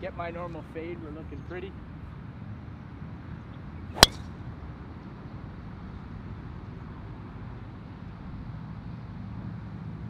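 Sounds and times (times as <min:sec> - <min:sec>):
golf driver striking ball: 0:04.0 - 0:04.2.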